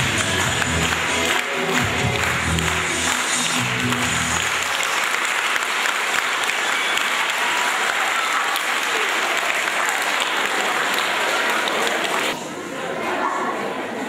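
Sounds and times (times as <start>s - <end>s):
music: 0.0s - 5.0s
audience applauding: 0.0s - 12.4s.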